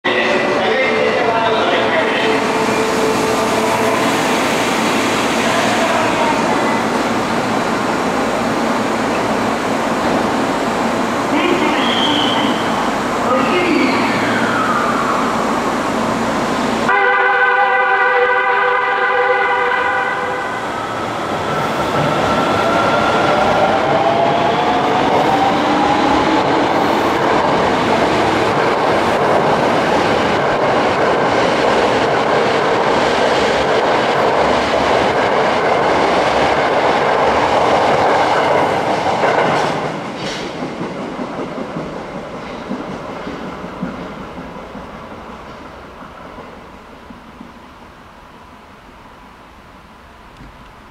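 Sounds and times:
train horn: 0:16.9 - 0:20.6
train wheel and running noise: 0:20.8 - 0:50.9.

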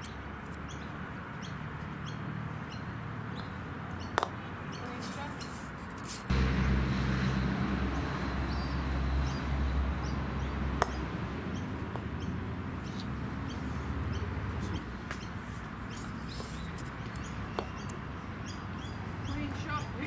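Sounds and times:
birds chirping: 0:00.0 - 0:20.0
mallet striking ball: 0:10.8 - 0:11.0.

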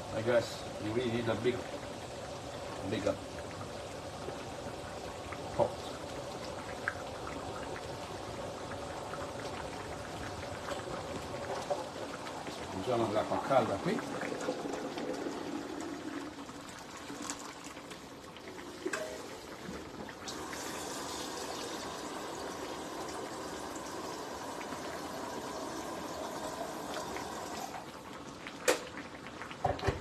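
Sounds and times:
hot water pouring into pan: 0:00.0 - 0:30.0.

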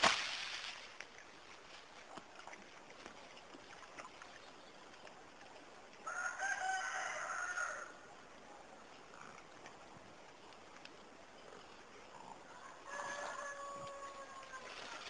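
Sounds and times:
birds scuffling in dry leaves: 0:00.0 - 0:02.2, 0:12.8 - 0:15.0
rooster crowing: 0:06.0 - 0:07.9, 0:12.5 - 0:14.6.

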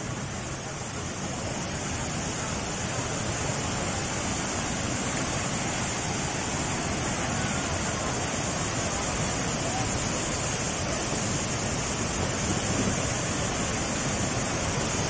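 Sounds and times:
floodwater running over road: 0:00.0 - 0:15.0
waterfall rushing: 0:00.0 - 0:15.0.

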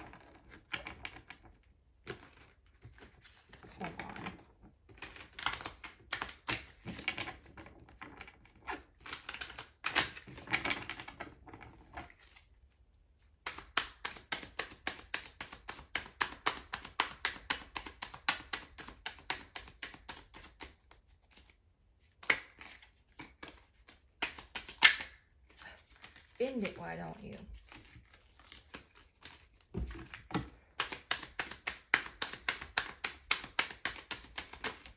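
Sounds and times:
cards being shuffled: 0:08.7 - 0:10.5, 0:12.0 - 0:12.6, 0:13.4 - 0:34.9.

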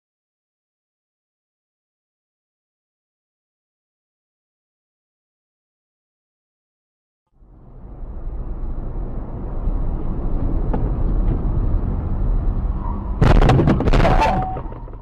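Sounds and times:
car engine and tyres rumbling: 0:07.3 - 0:15.0
car crash impacts: 0:13.2 - 0:15.0.

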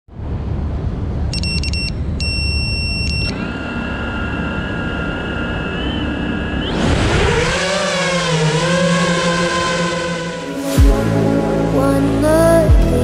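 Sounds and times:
electronic beeps: 0:01.3 - 0:07.0
drone motors whining: 0:02.6 - 0:11.5.

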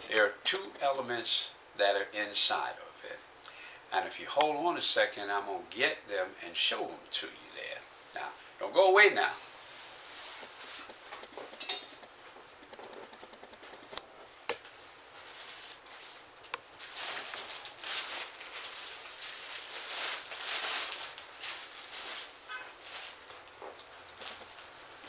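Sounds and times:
plastic bag rustling: 0:09.3 - 0:25.0.

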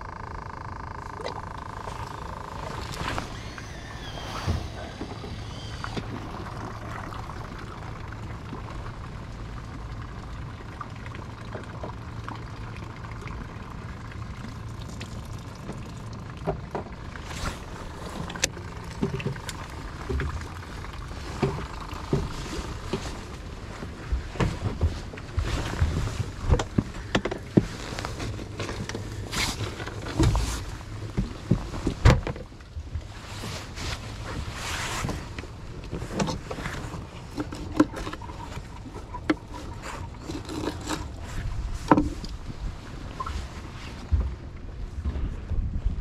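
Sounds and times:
boat motor humming: 0:00.0 - 0:45.5
knocks and clatter of gear: 0:14.9 - 0:33.6.

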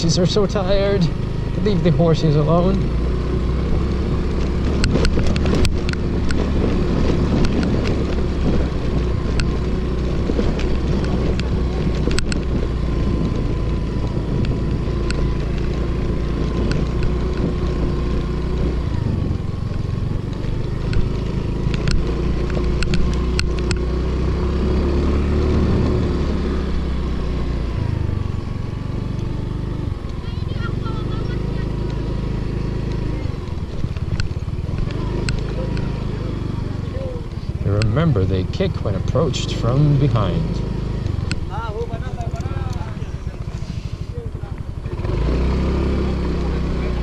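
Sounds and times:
scooter engine running: 0:00.0 - 0:47.0
sharp clicks and knocks: 0:04.6 - 0:09.6, 0:10.2 - 0:13.5, 0:20.2 - 0:23.9, 0:33.7 - 0:35.9.

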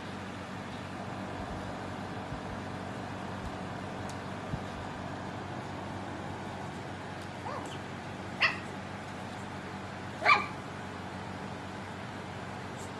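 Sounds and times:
puppy barking: 0:07.4 - 0:07.8, 0:08.4 - 0:08.7, 0:10.2 - 0:10.6
puppy whining: 0:07.4 - 0:07.8.

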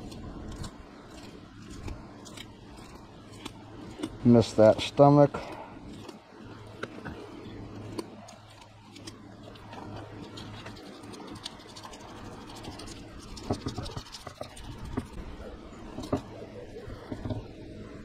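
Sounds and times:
knife scraping fish bones: 0:00.0 - 0:04.2, 0:05.3 - 0:15.2.

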